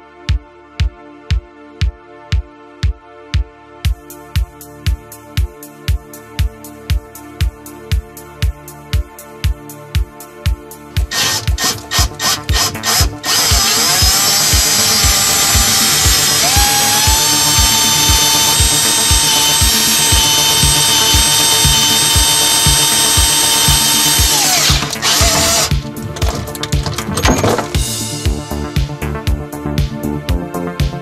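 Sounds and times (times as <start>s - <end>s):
music with steady beat: 0.0s - 31.0s
cordless drill whining: 11.0s - 27.0s.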